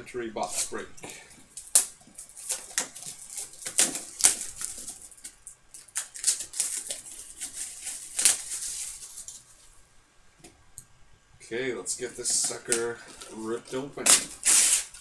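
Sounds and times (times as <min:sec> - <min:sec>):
plastic wrap crinkling and tearing: 0:01.4 - 0:09.8, 0:12.1 - 0:15.0.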